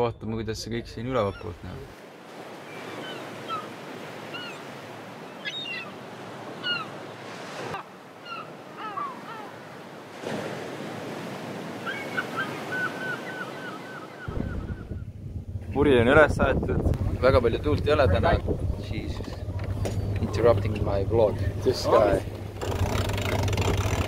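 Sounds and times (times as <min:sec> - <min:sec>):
wind: 0:00.0 - 0:24.0
water rushing: 0:00.9 - 0:14.7, 0:15.7 - 0:24.0
small birds chirping: 0:02.7 - 0:07.2.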